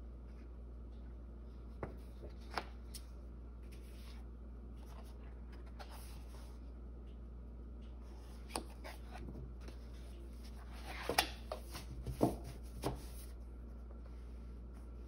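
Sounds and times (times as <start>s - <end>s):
faint low hum: 0.0s - 15.0s
book pages rustling and tapping: 8.1s - 13.3s.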